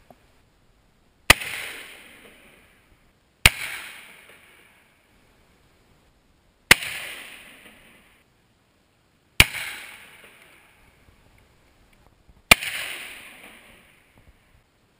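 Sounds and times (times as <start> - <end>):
rifle shots with echo: 1.3 - 2.8, 3.4 - 4.9, 6.7 - 8.2, 9.4 - 10.8, 12.5 - 14.2.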